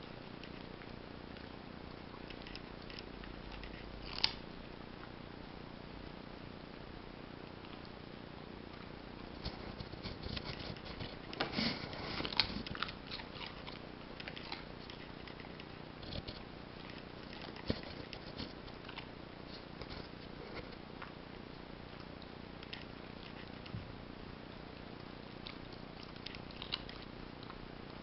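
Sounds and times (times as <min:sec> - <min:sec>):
puppy crunching a carrot: 0:00.1 - 0:05.2, 0:08.7 - 0:23.8, 0:24.7 - 0:28.0.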